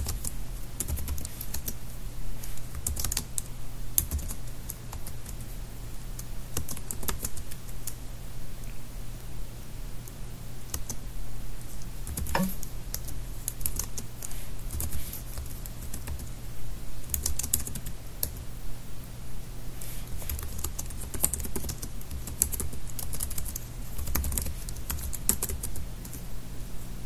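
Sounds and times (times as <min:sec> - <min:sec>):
keyboard typing: 0:02.7 - 0:05.4, 0:06.6 - 0:08.0, 0:12.1 - 0:14.0, 0:17.1 - 0:18.4, 0:20.3 - 0:26.2.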